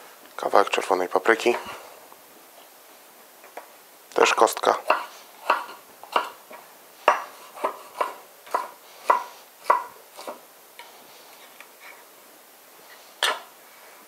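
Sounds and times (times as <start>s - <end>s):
knife strokes on wooden board: 4.8s - 12.0s.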